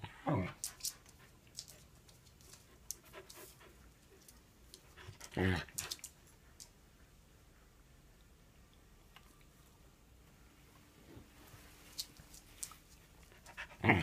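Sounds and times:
dog panting: 13.2s - 14.0s.

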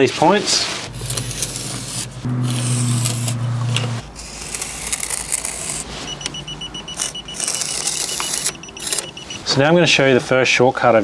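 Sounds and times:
low hum: 0.8s - 4.6s
rapid high-pitched electronic beeps: 6.1s - 9.4s.

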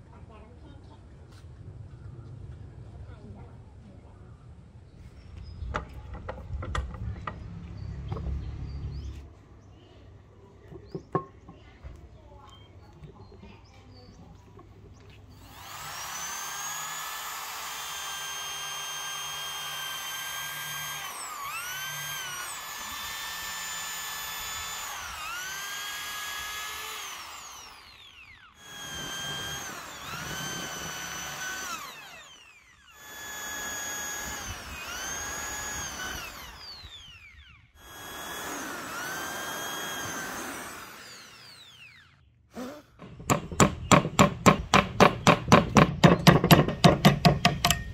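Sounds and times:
electric drill boring into wood: 15.3s - 45.3s.

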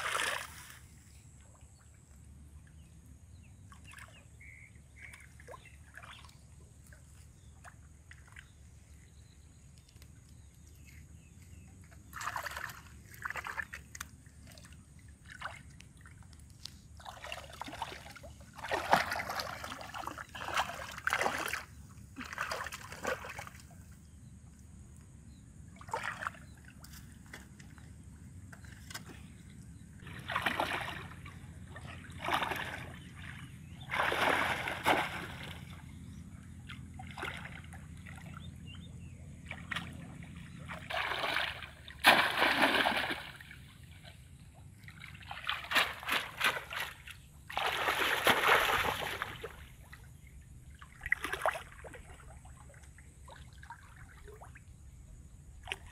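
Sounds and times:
shallow water splashing: 11.9s - 24.2s, 25.7s - 55.9s.

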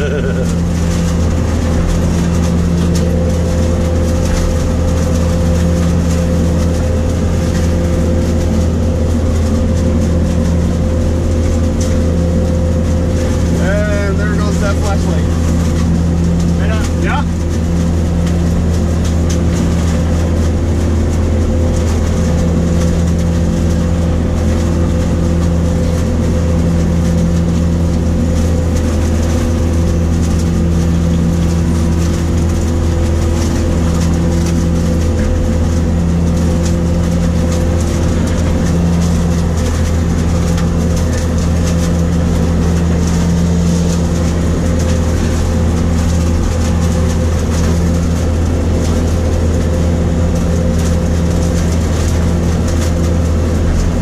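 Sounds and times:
harvester droning from cab: 0.0s - 54.0s.

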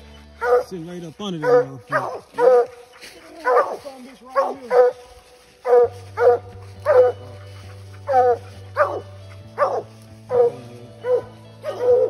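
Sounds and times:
dogs barking: 0.0s - 12.0s.

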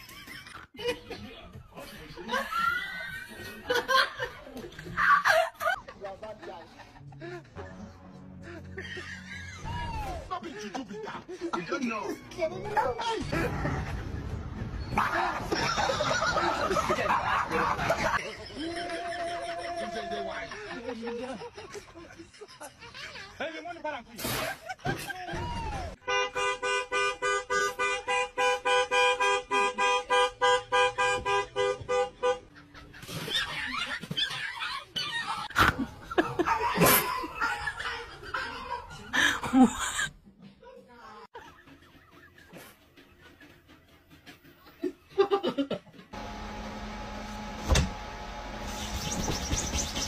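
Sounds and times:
car horn honking: 26.0s - 32.5s.

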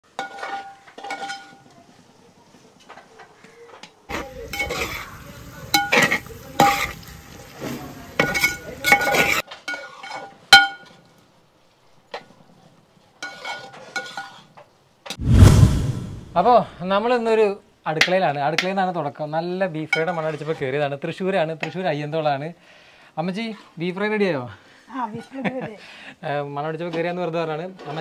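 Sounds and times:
spatula scraping metal pot: 4.1s - 5.2s, 13.2s - 14.4s, 20.0s - 20.7s
frying sizzle: 4.1s - 9.4s.

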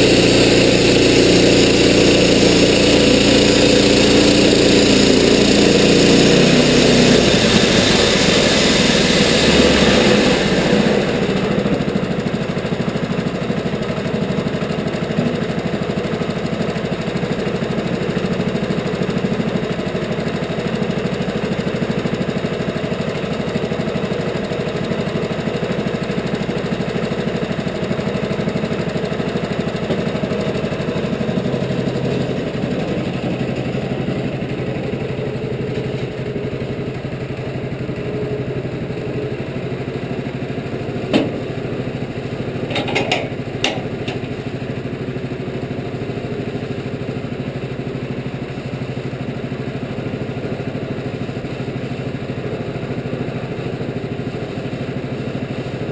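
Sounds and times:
sawmill gas engine running: 0.0s - 55.9s
sharp knocks: 41.1s - 41.5s.

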